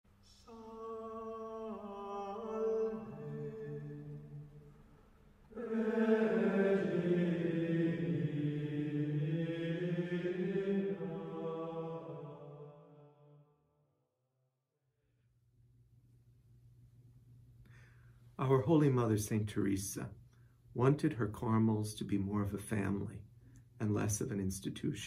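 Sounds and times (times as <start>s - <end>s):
unaccompanied chanted singing: 0.3s - 4.6s, 5.5s - 13.2s.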